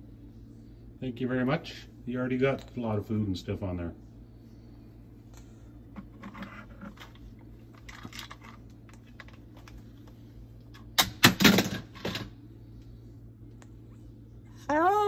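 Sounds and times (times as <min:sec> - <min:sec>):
plastic toys clicking and rattling: 0:07.7 - 0:09.7
loud clatter of hard knocks: 0:11.0 - 0:12.3.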